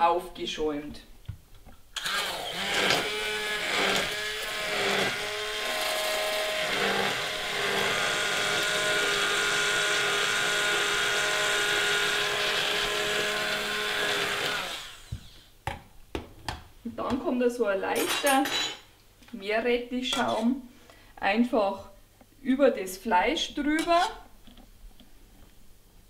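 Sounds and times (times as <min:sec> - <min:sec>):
immersion blender running: 0:02.0 - 0:15.4.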